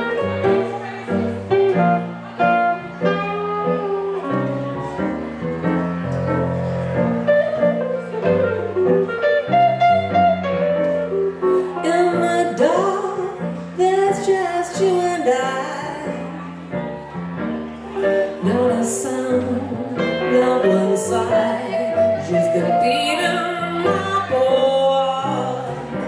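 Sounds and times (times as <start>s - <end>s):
electric guitar playing blues: 0.0s - 16.7s
electric keyboard: 0.0s - 26.0s.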